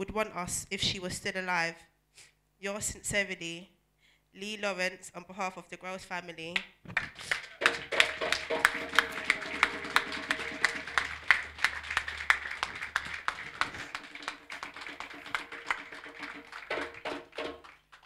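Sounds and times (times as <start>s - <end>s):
audience applauding: 7.0s - 18.0s.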